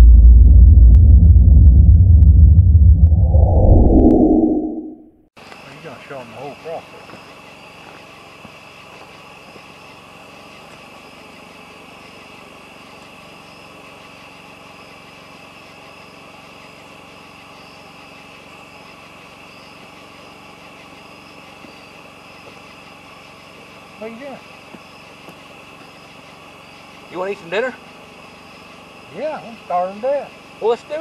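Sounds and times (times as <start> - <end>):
low engine hum: 0.0 - 5.0
insects chirring: 5.4 - 31.0.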